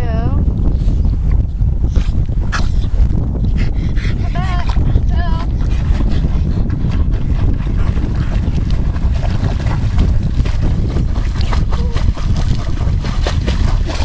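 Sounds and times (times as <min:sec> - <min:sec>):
wind on microphone: 0:00.0 - 0:14.0
dog splashing in water: 0:07.2 - 0:14.0.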